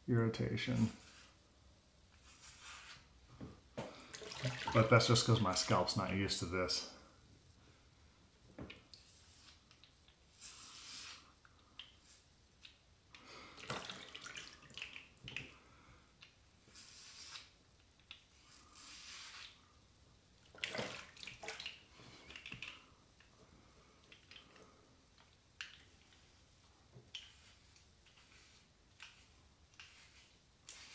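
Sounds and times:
razor scraping stubble: 27.1s - 30.9s.

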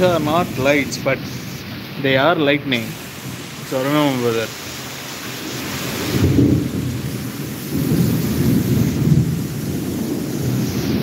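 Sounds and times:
thunder rumbling: 0.0s - 1.5s, 5.3s - 11.0s
rain hissing: 0.0s - 11.0s.

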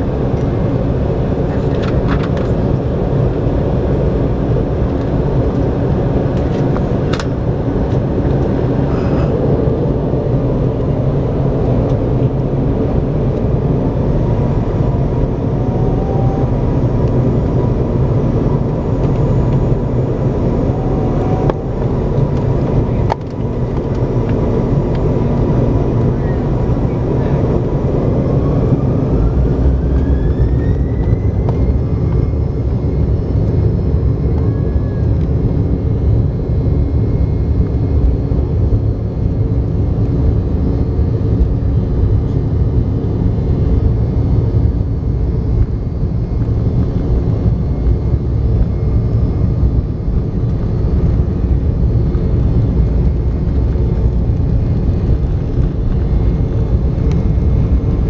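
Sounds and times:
jet engine whine: 0.0s - 58.0s
loud even rumble: 0.0s - 58.0s.

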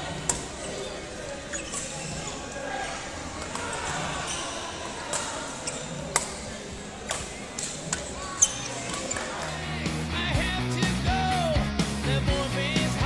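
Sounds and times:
murmur of voices: 0.0s - 13.0s
rackets striking shuttlecock: 6.1s - 6.4s.

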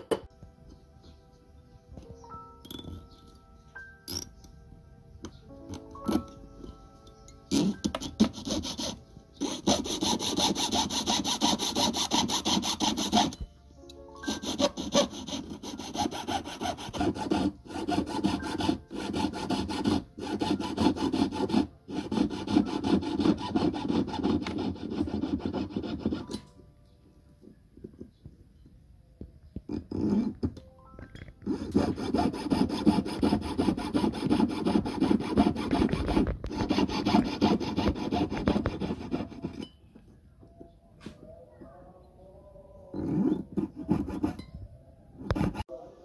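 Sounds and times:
saw rasping through metal: 7.4s - 13.5s, 14.2s - 26.4s, 31.4s - 39.7s, 43.0s - 44.5s, 45.2s - 45.7s.

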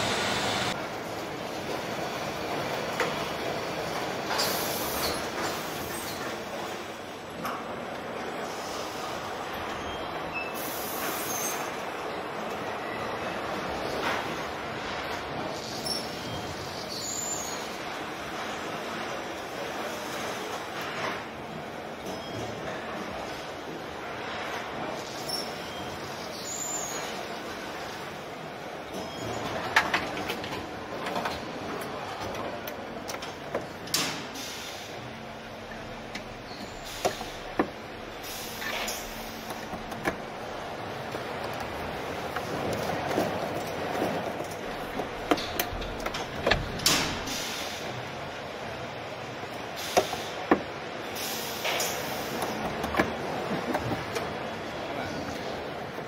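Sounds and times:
steady factory hum: 0.0s - 56.0s
sharp clicks and knocks: 41.1s - 47.3s.

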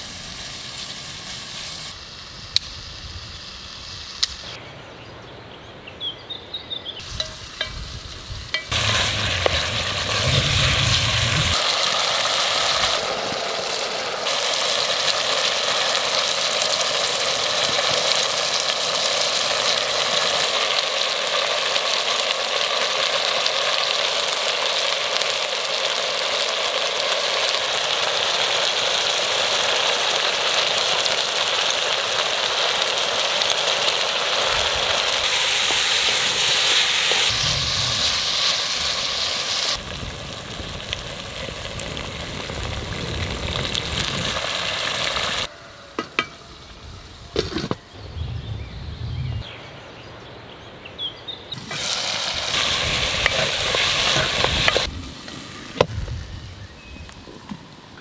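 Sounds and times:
meat sizzling in a pot: 0.0s - 4.6s, 7.0s - 45.5s, 51.6s - 56.6s.

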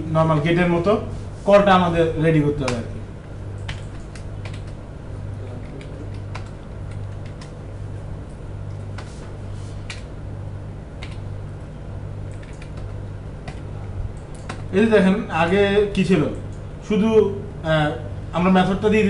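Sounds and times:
steady low hum: 0.0s - 19.0s
computer keyboard typing: 3.5s - 4.8s, 5.5s - 7.6s, 9.8s - 10.1s, 10.9s - 11.3s, 12.2s - 14.7s.

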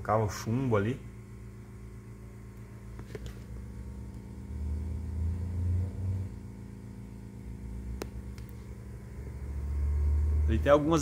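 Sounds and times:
steady low hum: 0.0s - 11.0s
click: 8.0s - 8.6s.

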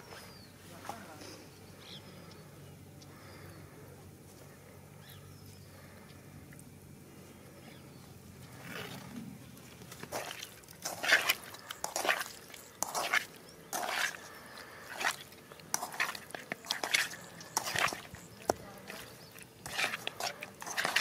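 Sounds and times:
faint steady hum: 0.0s - 21.0s
hands squishing raw chicken: 9.8s - 21.0s.

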